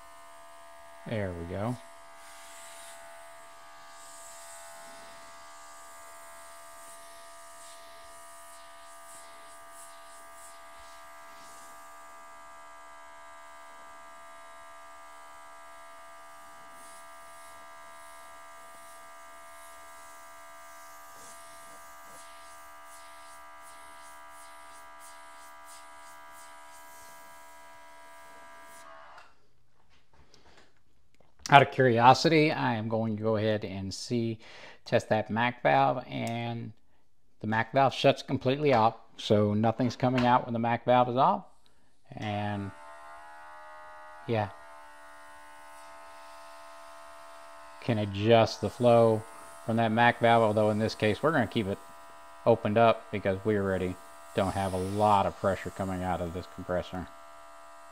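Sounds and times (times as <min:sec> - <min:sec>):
compressor electric whine: 0:00.0 - 0:29.4, 0:42.2 - 0:57.9
airbrush hissing: 0:01.6 - 0:12.0, 0:16.3 - 0:27.6, 0:44.9 - 0:57.4.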